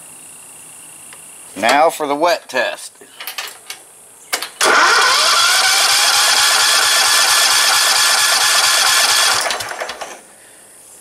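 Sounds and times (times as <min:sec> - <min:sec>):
engine electric starter whining: 0:04.6 - 0:10.2.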